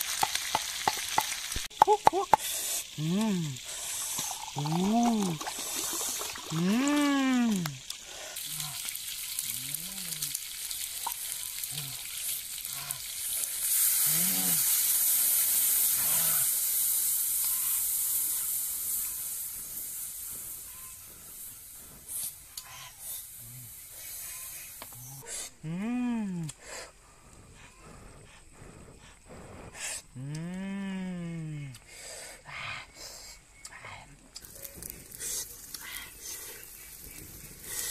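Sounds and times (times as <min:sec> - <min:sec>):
sauce sizzling in a pan: 0:00.0 - 0:04.8, 0:07.6 - 0:21.8.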